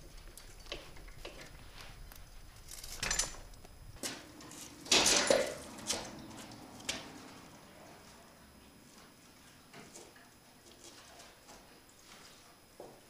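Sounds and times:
metallic knocks and clattering: 0:04.0 - 0:06.2
footsteps on concrete floor: 0:09.8 - 0:13.0.

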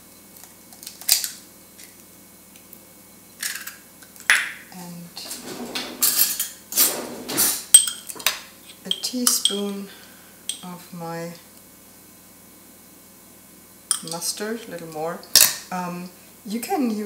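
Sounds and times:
containers rustling and clattering: 0:05.2 - 0:08.9
utensils clinking in bowl: 0:05.2 - 0:09.8.

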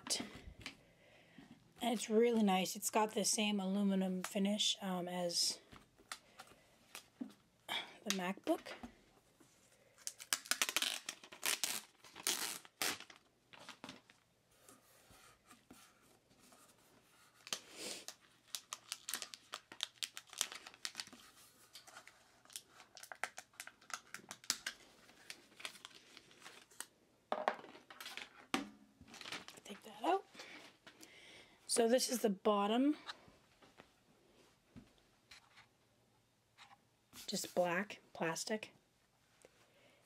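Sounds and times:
plastic wrap crinkling and tearing: 0:10.0 - 0:14.2, 0:17.4 - 0:26.9, 0:29.1 - 0:29.7.

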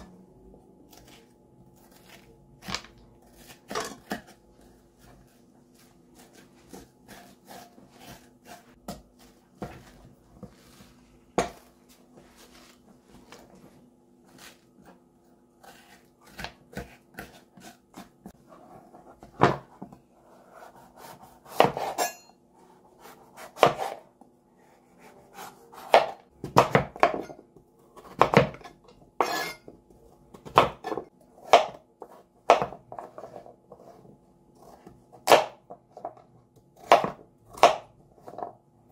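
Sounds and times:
metal spoon scraping squash: 0:03.2 - 0:09.9, 0:28.7 - 0:29.7.

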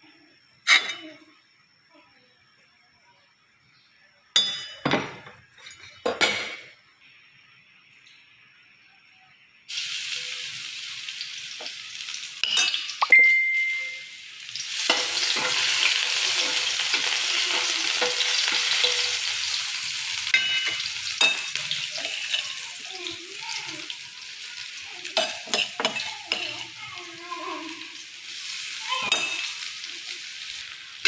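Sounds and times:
garlic sizzling in oil: 0:09.5 - 0:31.0
spatula clinking against wok: 0:20.3 - 0:22.6.

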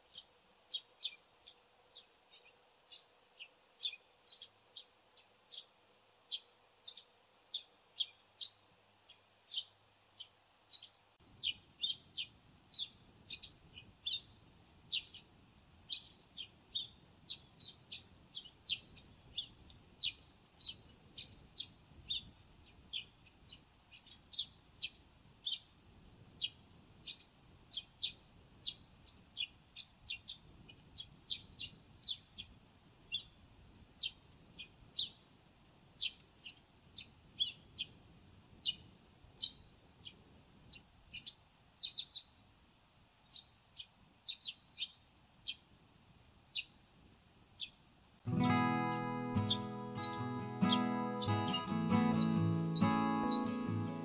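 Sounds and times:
sparrow chirping: 0:00.1 - 0:04.9, 0:05.5 - 0:15.3, 0:15.9 - 0:25.7, 0:26.4 - 0:30.4, 0:31.0 - 0:33.4, 0:34.0 - 0:35.2, 0:36.0 - 0:38.0, 0:38.6 - 0:42.4, 0:43.3 - 0:45.6, 0:46.5 - 0:46.8, 0:47.6 - 0:54.0.

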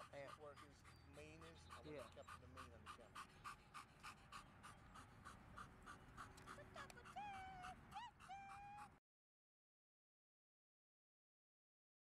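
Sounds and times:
dog panting: 0:00.0 - 0:09.0
dog whining: 0:07.2 - 0:08.9.

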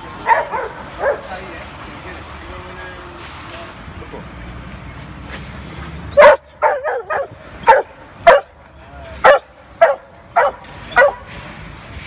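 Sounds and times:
dog barking sharply: 0:09.2 - 0:11.3.

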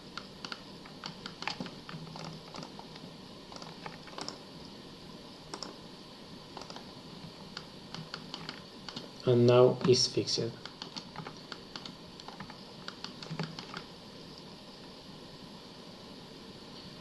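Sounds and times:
computer mouse clicking: 0:00.1 - 0:04.8, 0:05.5 - 0:05.8, 0:06.6 - 0:09.2, 0:10.6 - 0:14.5
mouse scroll wheel turning: 0:00.2 - 0:04.4, 0:05.5 - 0:05.8, 0:06.6 - 0:09.1, 0:10.6 - 0:13.9.

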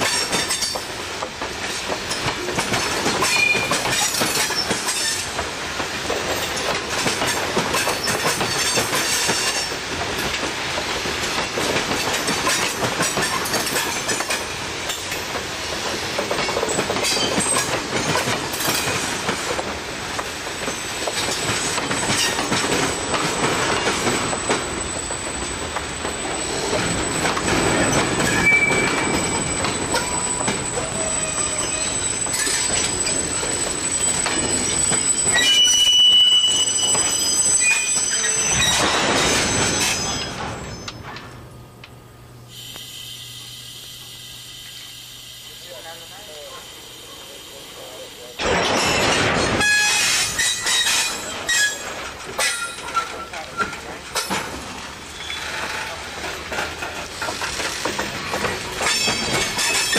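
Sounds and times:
train wheels rumbling on rail: 0:00.0 - 0:59.9
wheel squeals: 0:03.2 - 0:05.3, 0:20.7 - 0:41.1, 0:48.9 - 0:53.9, 0:55.1 - 0:56.1, 0:58.8 - 0:59.9
wheel clacks: 0:50.4 - 0:59.9.

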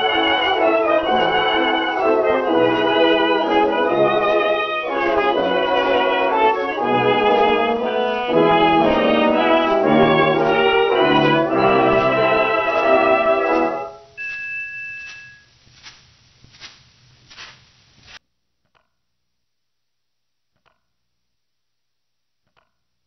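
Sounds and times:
dance orchestra playing a waltz: 0:00.0 - 0:13.9.

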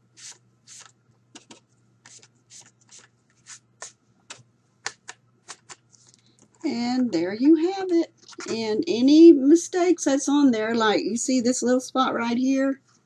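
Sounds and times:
inking tool scrubbing on cardstock: 0:00.2 - 0:03.9
sharp taps: 0:03.8 - 0:05.8.

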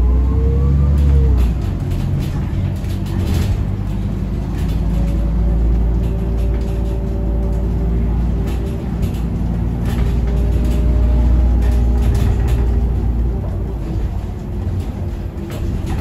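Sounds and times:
bus drivetrain rumble: 0:00.0 - 0:16.0
light rattles: 0:01.4 - 0:16.0.

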